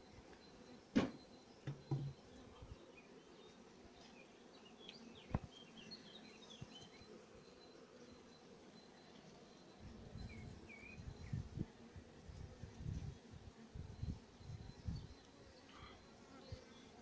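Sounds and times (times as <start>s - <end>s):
honeybees humming: 0.0s - 17.0s
wooden frames knocking hive box: 0.9s - 2.2s.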